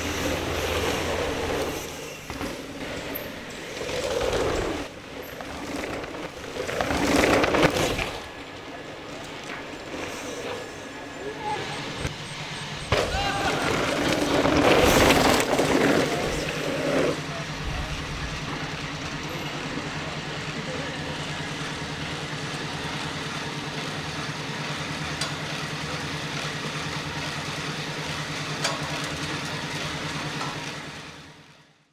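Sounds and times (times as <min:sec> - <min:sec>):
rush of noise: 0:00.0 - 0:21.7.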